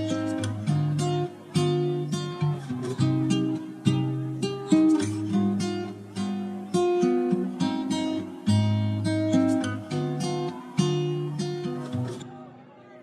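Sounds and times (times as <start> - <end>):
acoustic guitar music: 0.0 - 12.9.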